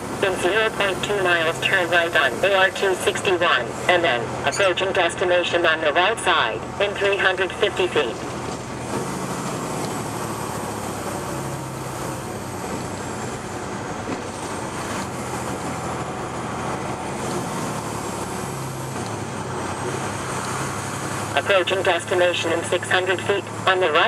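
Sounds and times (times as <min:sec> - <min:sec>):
truck diesel engine running: 0:00.0 - 0:24.0
tyre road noise: 0:00.0 - 0:24.0.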